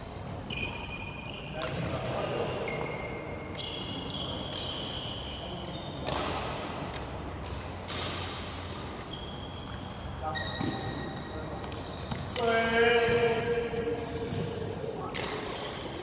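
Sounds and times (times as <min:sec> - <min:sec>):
shoes squeaking on court floor: 0:00.0 - 0:16.0
racket hitting shuttlecock: 0:06.0 - 0:09.1, 0:15.0 - 0:15.8.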